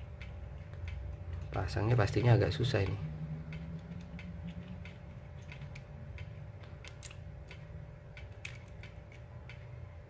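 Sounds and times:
faint low hum: 0:00.0 - 0:10.0
metal parts clicking: 0:03.8 - 0:09.7.

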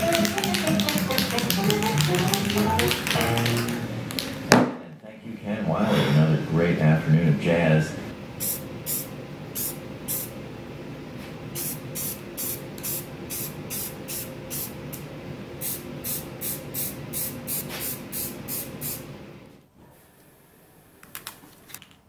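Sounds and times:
spray paint can bursts: 0:00.0 - 0:03.7, 0:11.6 - 0:14.7, 0:15.6 - 0:19.0.

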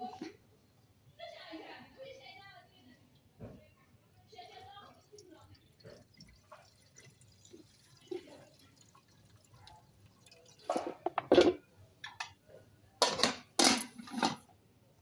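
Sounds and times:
liquid dripping into metal pot: 0:04.8 - 0:12.4
metal pots clattering and scraping: 0:10.2 - 0:14.6.

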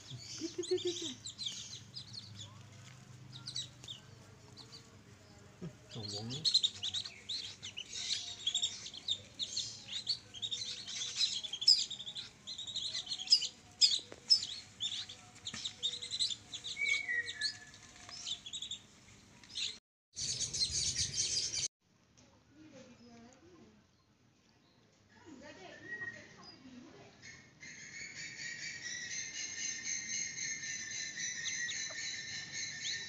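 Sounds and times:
ducklings peeping: 0:00.0 - 0:04.9, 0:05.6 - 0:18.8, 0:19.4 - 0:21.7.

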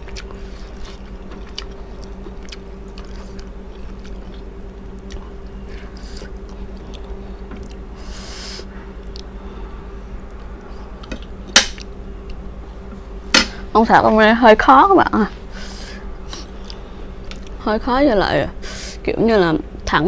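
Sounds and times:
chewing: 0:00.0 - 0:07.9, 0:09.0 - 0:09.3, 0:16.3 - 0:17.6
steady low hum: 0:00.0 - 0:20.0.

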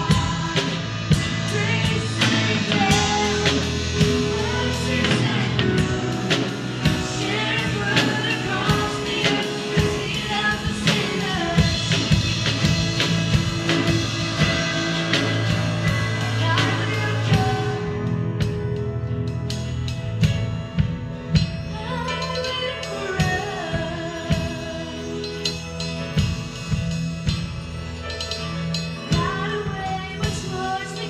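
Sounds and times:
woman singing: 0:00.0 - 0:18.7, 0:21.7 - 0:25.6, 0:29.1 - 0:31.0.

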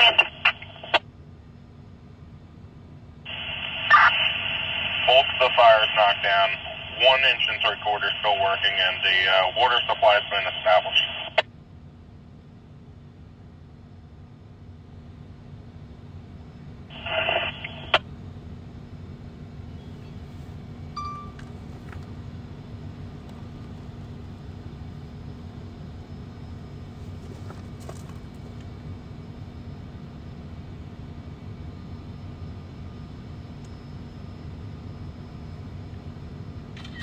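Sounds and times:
radio click: 0:00.0 - 0:01.0, 0:17.0 - 0:18.0
radio squelch noise: 0:00.0 - 0:01.0, 0:03.3 - 0:11.4, 0:16.9 - 0:18.0
steady low rumble: 0:00.0 - 0:36.9
brief beep: 0:21.0 - 0:21.4.

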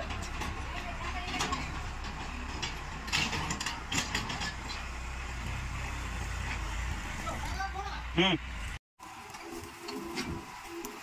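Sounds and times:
diesel engines running: 0:00.0 - 0:11.0.

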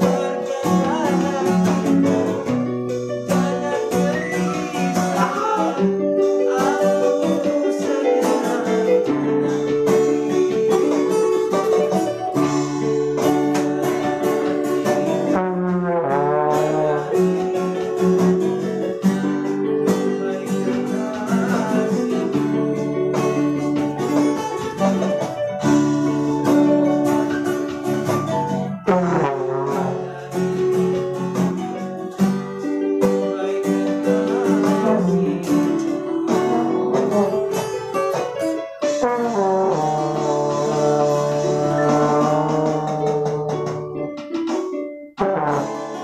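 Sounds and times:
trombone melody: 0:00.0 - 0:44.1, 0:45.2 - 0:46.0
electronic keyboard chords: 0:00.0 - 0:46.0
strummed acoustic guitar: 0:00.0 - 0:46.0.

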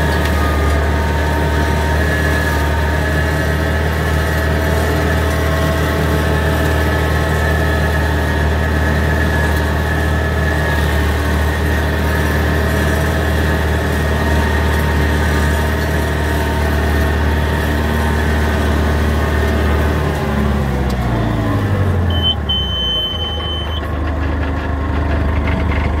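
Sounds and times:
tractor with flail mower running: 0:00.0 - 0:26.0
high electronic beep: 0:22.1 - 0:23.9.

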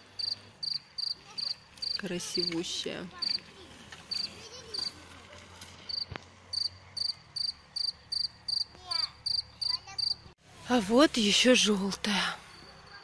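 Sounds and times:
cricket chirping: 0:00.2 - 0:02.0, 0:05.9 - 0:10.2.

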